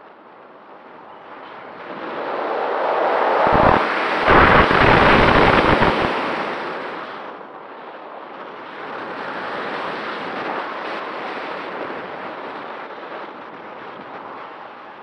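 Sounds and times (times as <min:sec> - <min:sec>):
wind hiss over camera: 0:00.0 - 0:15.0
wind buffeting: 0:00.5 - 0:07.5.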